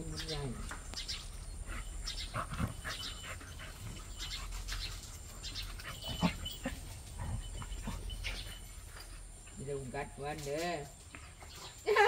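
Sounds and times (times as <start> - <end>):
dogs panting: 0.4 - 10.0
dogs snarling and yipping: 1.2 - 9.5.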